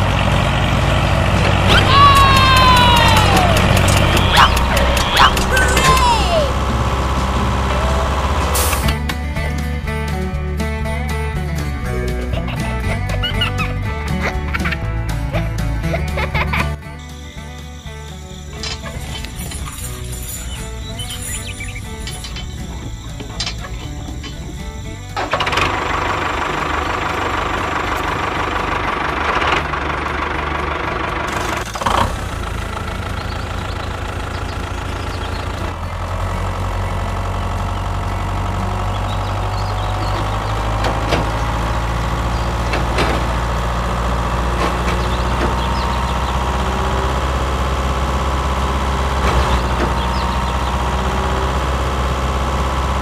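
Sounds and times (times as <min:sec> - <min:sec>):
toy tractor motor whine: 0:01.7 - 0:09.0, 0:17.0 - 0:28.9
scattered clicks: 0:02.2 - 0:06.0.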